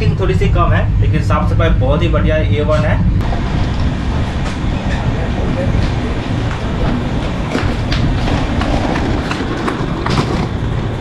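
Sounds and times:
train rumbling on track: 0.0 - 11.0
wheels clicking over rail joints: 3.6 - 11.0.

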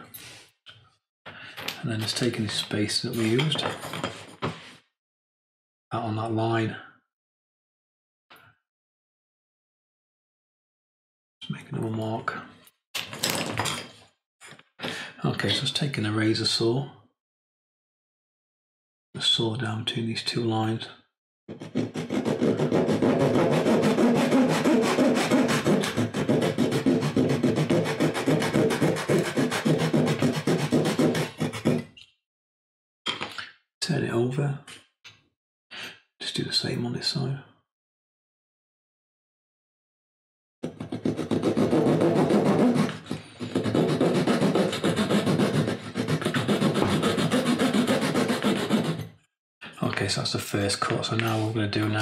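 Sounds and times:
saw cutting wooden dowel: 21.5 - 32.0, 40.6 - 49.1.

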